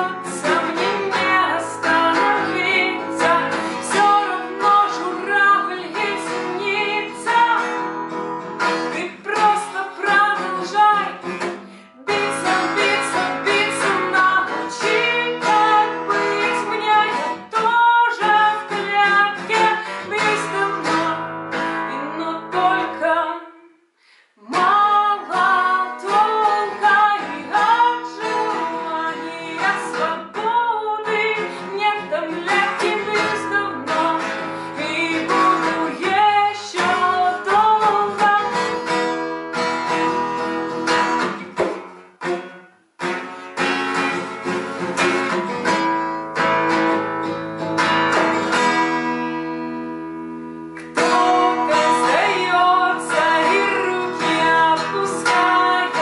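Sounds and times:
strummed acoustic guitar: 0.0s - 23.4s, 24.4s - 56.0s
woman singing: 0.0s - 23.8s, 24.4s - 39.3s, 50.8s - 56.0s.

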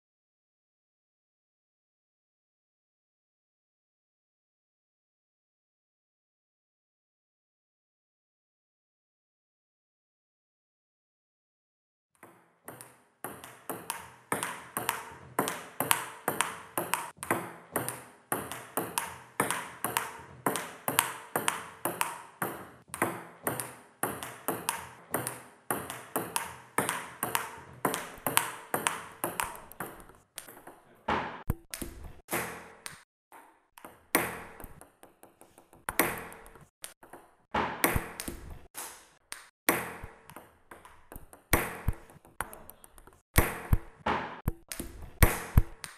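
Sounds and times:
table tennis ball hits: 12.2s - 45.9s.

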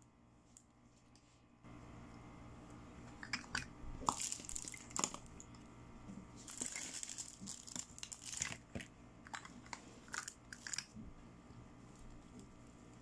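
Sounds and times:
plastic crinkling: 4.0s - 5.4s, 6.4s - 10.9s.

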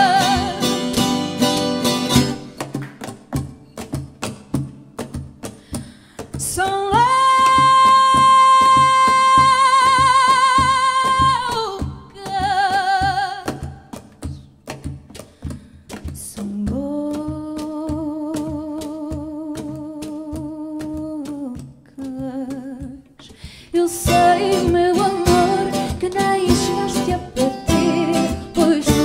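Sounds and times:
woman singing with vibrato: 0.0s - 1.2s, 6.4s - 13.9s, 16.2s - 29.0s
percussion: 0.0s - 29.0s
plucked guitars: 0.0s - 29.0s.

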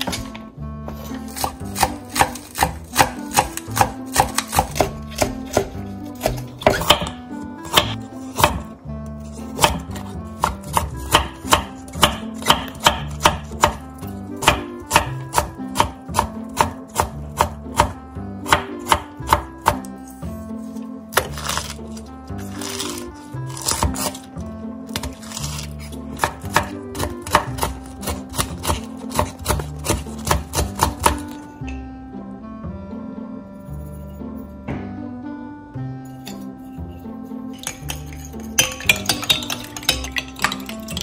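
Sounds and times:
knife chopping on wooden board: 1.0s - 8.7s, 9.6s - 19.9s, 23.5s - 24.2s, 24.9s - 31.4s.

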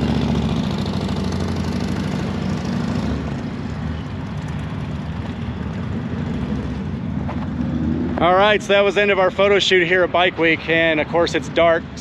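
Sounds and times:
motorcycle engine riding away: 0.0s - 9.2s.

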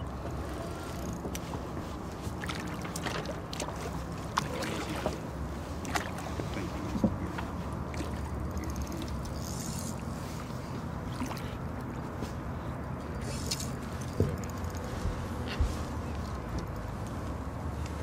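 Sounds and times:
boat hum: 0.0s - 18.0s.

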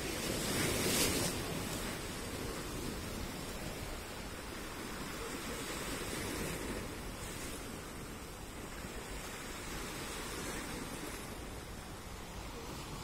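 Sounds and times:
waves breaking on rocks: 0.0s - 13.0s.

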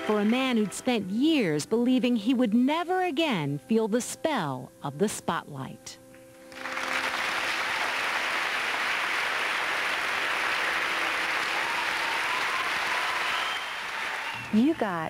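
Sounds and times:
audience applauding: 6.5s - 15.0s.

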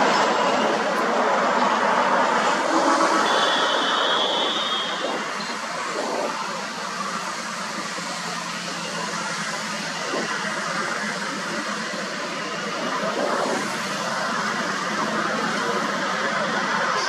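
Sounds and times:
road traffic passing: 0.0s - 17.0s.

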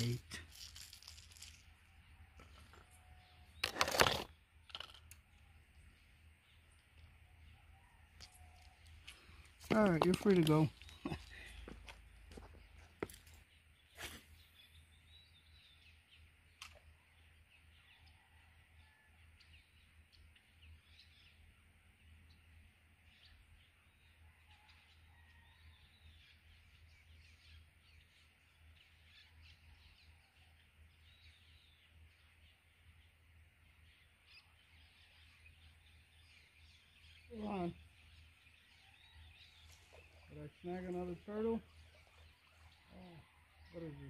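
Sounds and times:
birds chirping: 0.0s - 44.0s.

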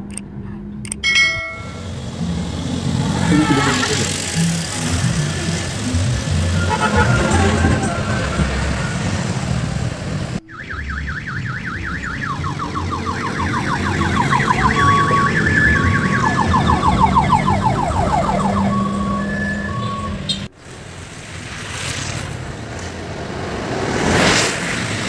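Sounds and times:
low engine rumble: 0.0s - 20.5s
lower-pitched warble: 1.0s - 20.3s
electronic siren horn warbling: 1.6s - 20.5s.

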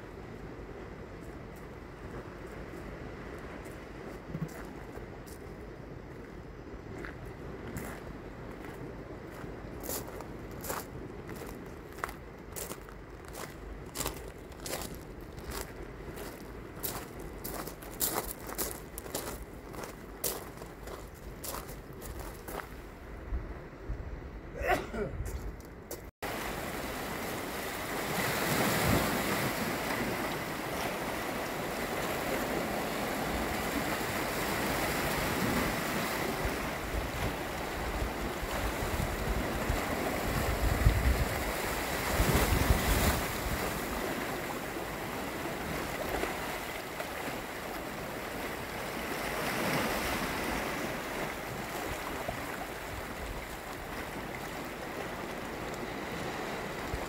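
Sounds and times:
surf breaking over rocks: 26.2s - 57.0s.

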